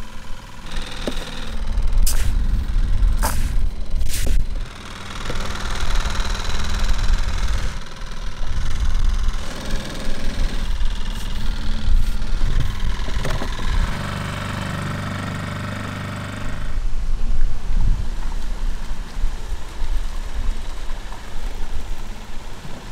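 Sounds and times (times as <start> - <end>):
engine idling with low rumble: 0.0 - 17.0.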